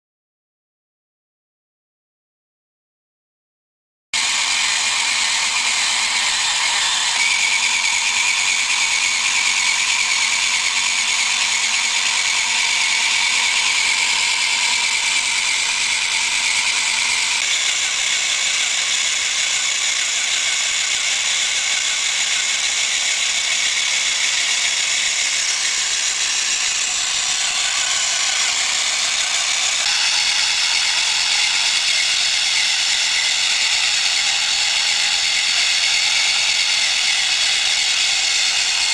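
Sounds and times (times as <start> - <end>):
small electric motor and gears: 4.2 - 38.9.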